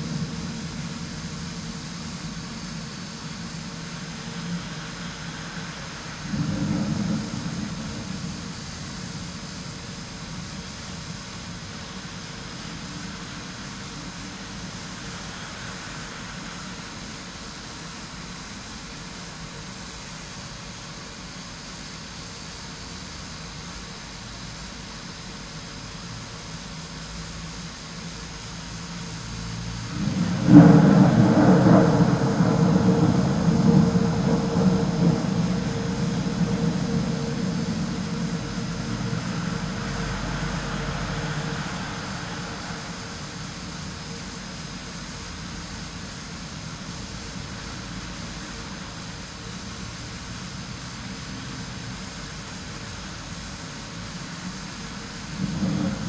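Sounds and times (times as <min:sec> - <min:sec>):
rolling thunder rumble: 0:00.0 - 0:18.6, 0:29.6 - 0:56.0
steady rushing noise: 0:00.0 - 0:21.0, 0:27.2 - 0:56.0
low rumble: 0:29.8 - 0:44.6.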